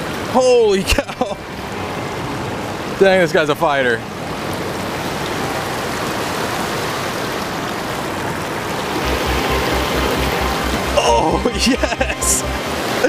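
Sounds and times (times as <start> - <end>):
water rushing from spillway: 2.6 - 13.0.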